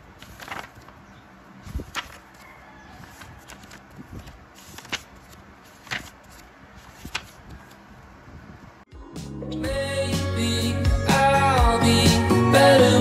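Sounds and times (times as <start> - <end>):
paper pages rustling: 0.0 - 7.9.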